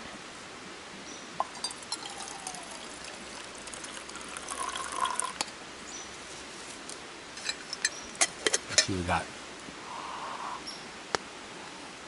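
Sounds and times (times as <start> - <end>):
light metal clink: 1.4 - 2.6, 7.4 - 8.9
liquid pouring into metal mug: 1.4 - 5.5.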